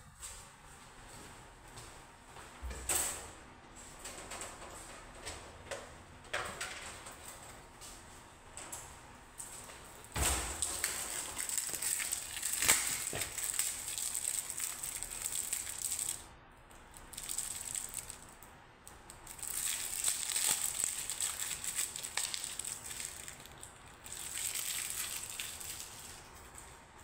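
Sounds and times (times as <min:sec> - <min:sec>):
plastic items crinkling and clicking: 0:09.5 - 0:26.8.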